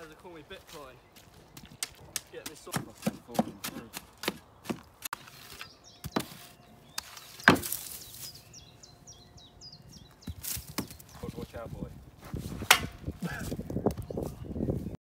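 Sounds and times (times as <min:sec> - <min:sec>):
bird chirping: 0:00.0 - 0:11.8
spades scraping into soil: 0:05.0 - 0:08.4.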